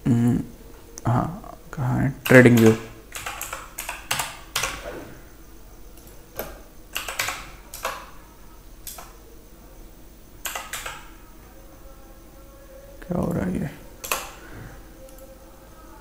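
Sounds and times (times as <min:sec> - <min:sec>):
faint steady hum: 0:00.0 - 0:16.0
computer keyboard keystrokes: 0:02.2 - 0:04.8, 0:06.9 - 0:08.1, 0:08.8 - 0:09.1, 0:10.4 - 0:11.1, 0:14.0 - 0:14.4.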